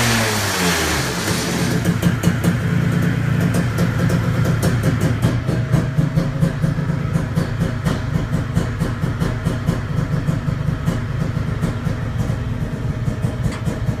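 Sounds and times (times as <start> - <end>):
two-stroke engine running steadily: 0.0 - 14.0
sharp uneven engine pops: 13.2 - 14.0.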